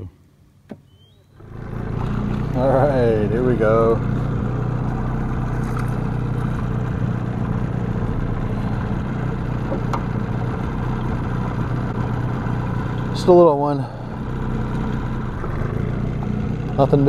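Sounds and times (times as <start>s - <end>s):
boat motor humming: 0.6s - 17.0s.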